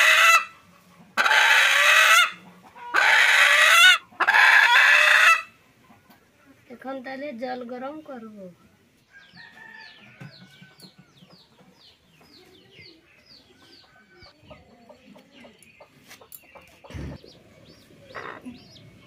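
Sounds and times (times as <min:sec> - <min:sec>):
hen clucking: 0:00.0 - 0:06.6, 0:09.4 - 0:19.0.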